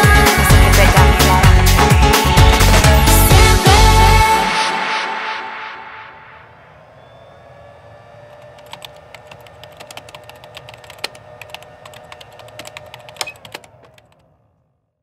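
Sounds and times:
low hum: 0.0s - 14.9s
faint steady tone: 6.0s - 8.6s
rapid sharp clicks: 8.3s - 14.3s.

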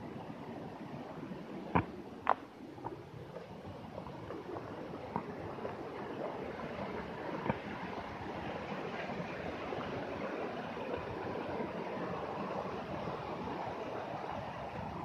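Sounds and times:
mountain stream rushing: 0.0s - 15.0s.

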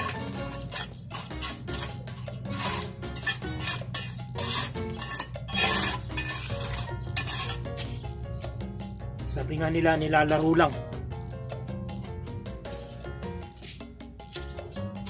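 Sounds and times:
trowel scraping grout: 0.0s - 8.0s.

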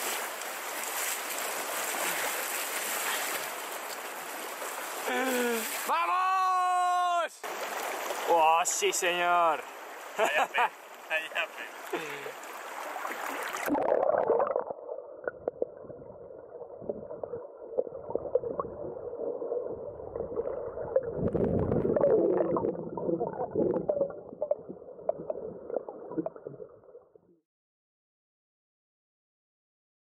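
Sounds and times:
muffled underwater river rush: 10.8s - 27.3s.

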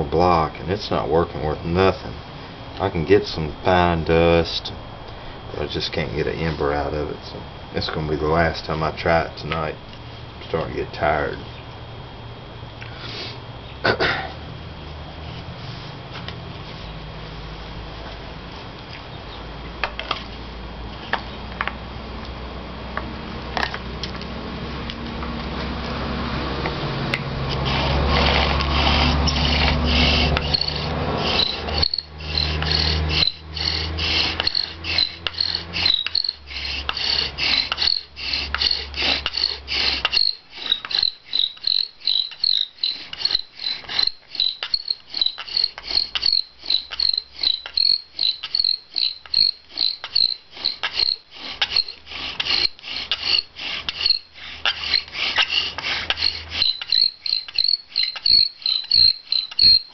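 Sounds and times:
steady low hum: 0.0s - 59.9s
bow drill grinding rasp: 27.4s - 59.9s.

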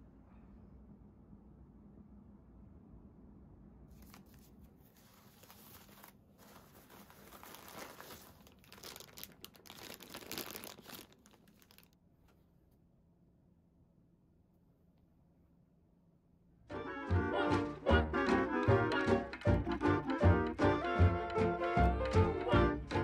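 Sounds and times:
packaging crinkling: 4.0s - 12.0s.

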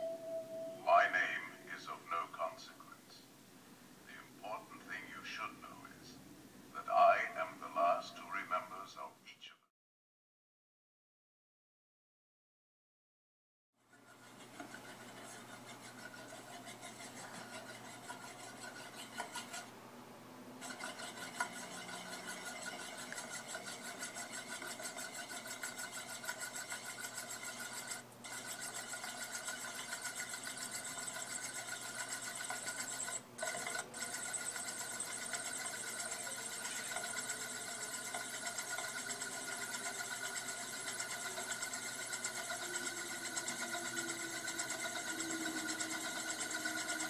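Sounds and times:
spinning metal disk whirring rattle: 13.8s - 19.7s, 20.6s - 47.0s.

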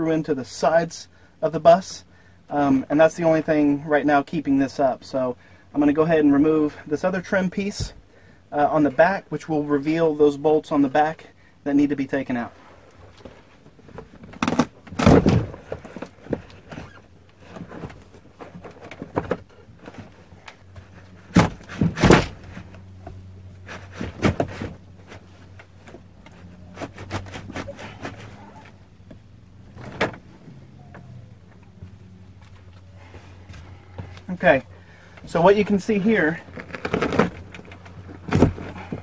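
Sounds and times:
trim being pried off: 14.0s - 30.3s, 36.4s - 39.0s.

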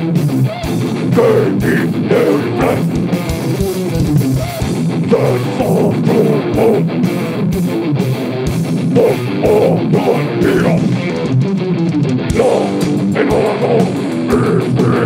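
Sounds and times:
distorted electric guitar: 0.0s - 15.0s
fast dense drumming: 0.6s - 7.6s, 12.3s - 15.0s.

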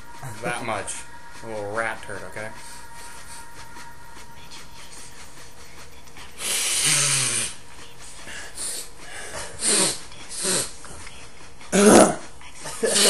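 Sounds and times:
person sniffing and snorting: 6.4s - 10.9s.

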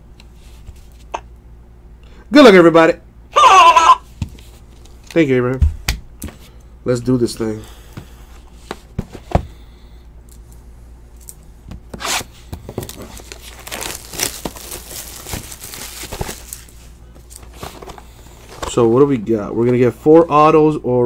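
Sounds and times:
card wrapping tearing and crinkling: 11.9s - 18.7s.

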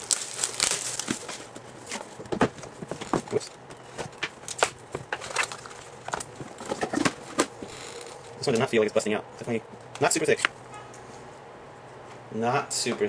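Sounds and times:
paper rustling: 0.0s - 3.4s.

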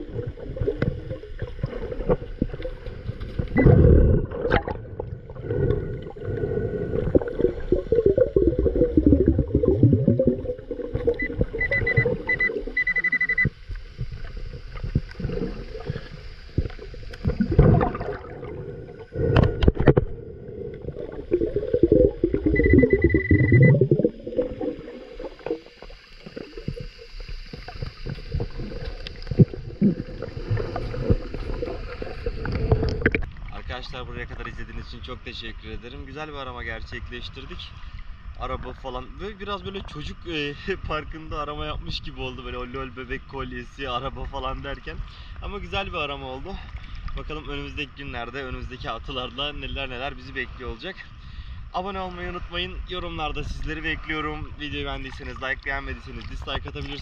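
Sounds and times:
underwater churning and bubbling: 0.0s - 57.0s
high pulsing beeps: 11.0s - 13.5s, 22.0s - 24.1s.

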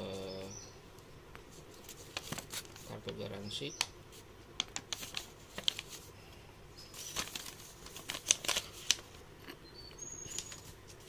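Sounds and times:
paper leaflets rustling: 1.5s - 3.2s, 4.1s - 6.1s, 6.9s - 9.2s, 10.2s - 11.0s.

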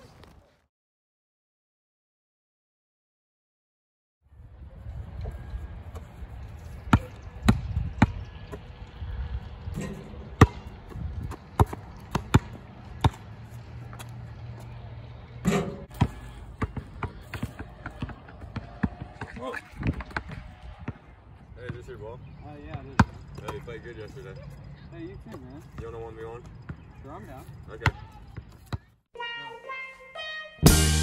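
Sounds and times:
basketball bouncing on pavement: 6.7s - 9.0s, 9.8s - 14.8s, 15.4s - 21.9s, 22.6s - 23.8s, 25.2s - 28.9s.

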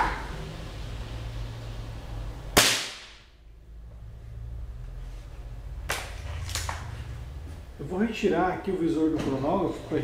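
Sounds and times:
air rifle shot crack: 2.6s - 3.3s.

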